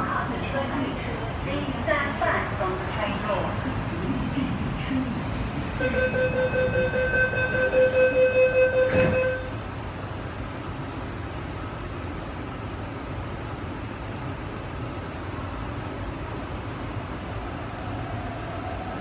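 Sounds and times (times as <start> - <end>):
train car low rumble: 0.0 - 19.0
rapid electronic warning beeps: 5.8 - 9.5.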